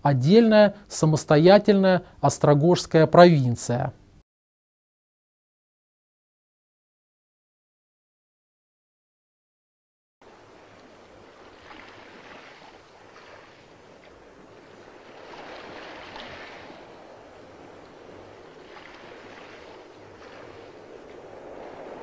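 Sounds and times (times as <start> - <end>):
waves washing along hull: 10.2 - 22.0
wind rushing: 15.0 - 22.0.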